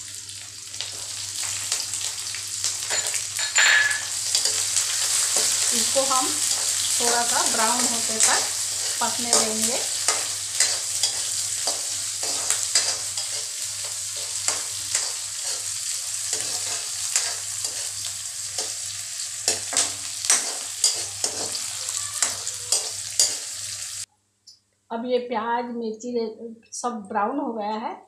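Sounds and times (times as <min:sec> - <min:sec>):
vegetables sizzling in hot oil: 0:00.0 - 0:24.1
spatula scraping pan: 0:03.9 - 0:23.9.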